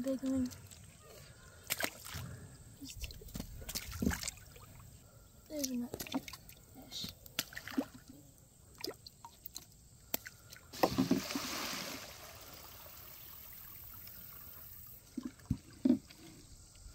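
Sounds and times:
water sloshing in cooler: 1.6s - 4.9s, 10.7s - 16.6s
fish splashing into pond: 7.4s - 8.0s, 10.1s - 15.7s.

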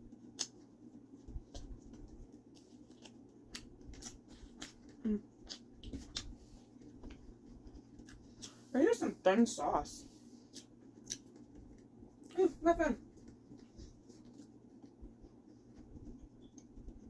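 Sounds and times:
person chewing crunchy food: 0.0s - 8.6s, 10.4s - 12.3s.

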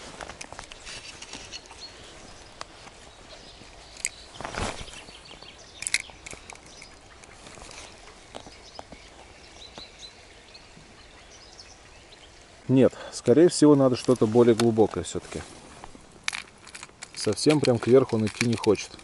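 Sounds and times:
faint birdsong: 0.5s - 19.0s
sharp clicks: 5.3s - 7.4s.

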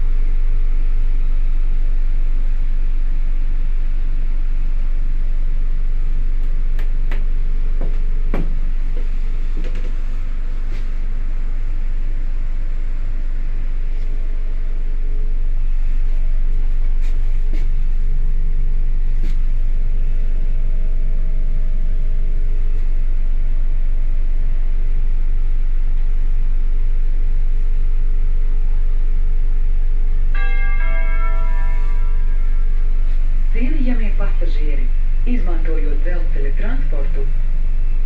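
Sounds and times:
train interior rumble and hum: 0.0s - 38.0s
chime over speakers: 30.4s - 34.2s.

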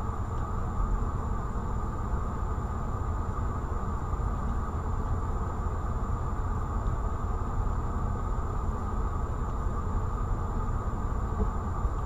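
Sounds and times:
car cabin rumble and hiss: 0.0s - 12.0s.

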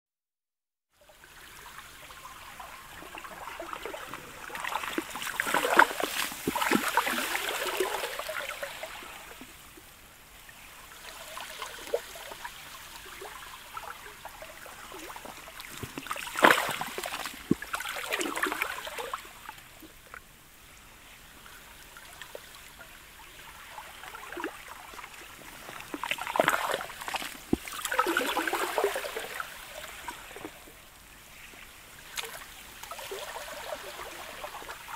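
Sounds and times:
water washing in with ice clicks: 3.5s - 8.5s, 15.1s - 19.0s, 24.2s - 30.5s, 32.1s - 34.9s
water trickling: 22.0s - 30.7s.

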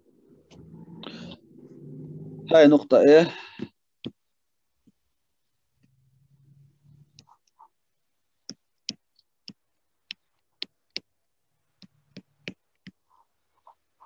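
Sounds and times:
stylus tapping drawing tablet: 3.6s - 6.1s, 7.0s - 13.2s.

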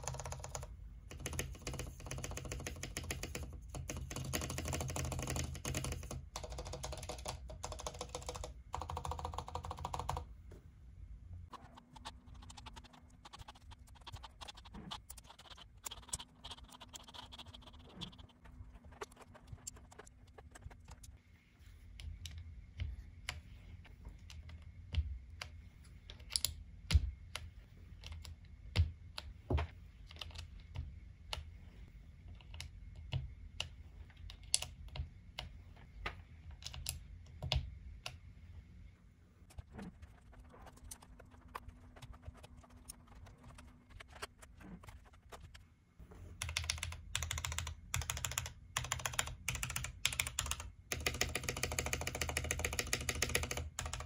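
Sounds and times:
mechanical keyboard keys clacking: 0.0s - 10.2s, 46.4s - 54.0s.

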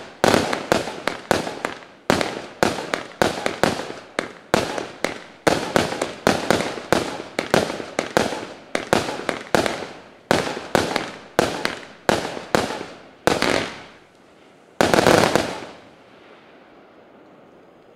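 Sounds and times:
firework bangs: 0.0s - 14.0s, 14.8s - 16.6s.

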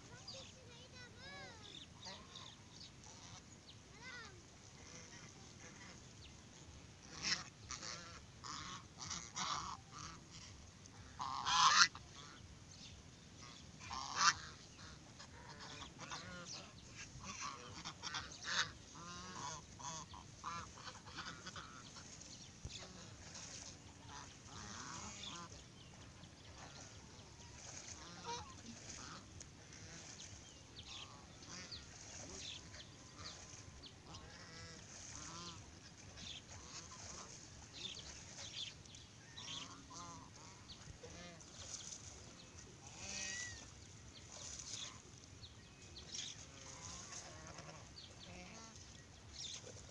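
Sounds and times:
geese honking: 7.0s - 12.4s, 13.4s - 25.6s, 27.6s - 30.2s, 30.9s - 37.4s, 39.3s - 41.7s, 42.8s - 43.7s, 46.2s - 48.8s.

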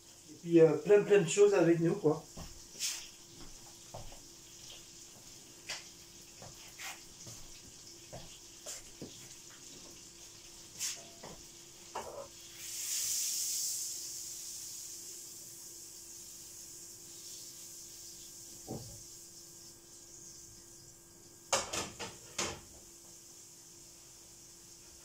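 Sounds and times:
butter sizzling in frying pan: 2.2s - 21.5s
kitchen clicks and knocks: 21.5s - 22.7s.

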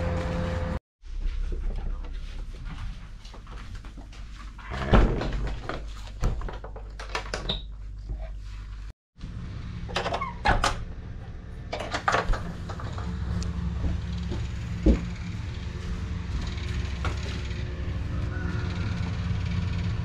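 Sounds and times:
heavy engine humming: 0.0s - 0.8s, 9.2s - 20.0s.

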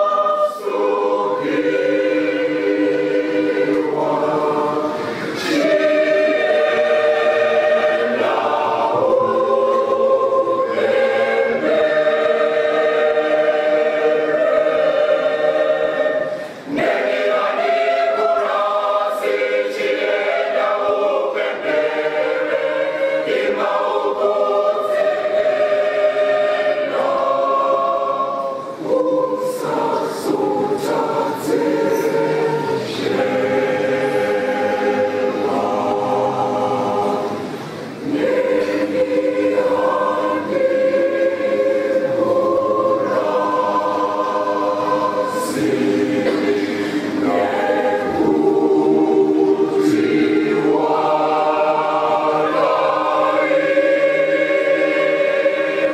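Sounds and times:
choir singing a hymn: 0.0s - 55.9s.

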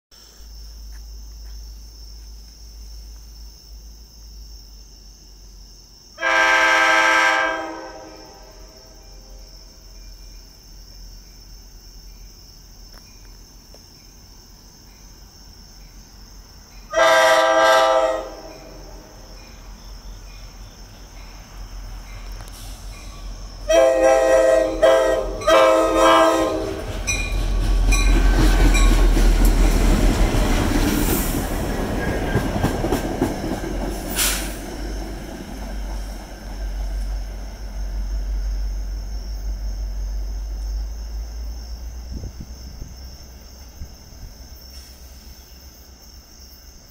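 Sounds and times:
train engine and wheels rumbling: 0.2s - 46.9s
locomotive air horn: 6.2s - 9.3s, 16.9s - 18.8s, 23.7s - 26.9s.

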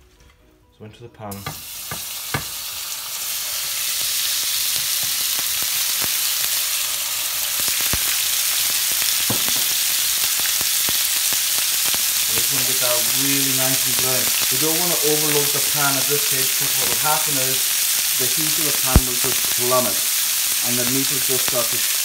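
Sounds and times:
meat sizzling in a frying pan: 1.4s - 22.0s.

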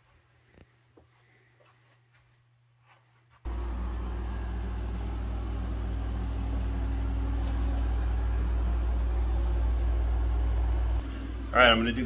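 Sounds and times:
low machine hum: 3.5s - 12.0s.

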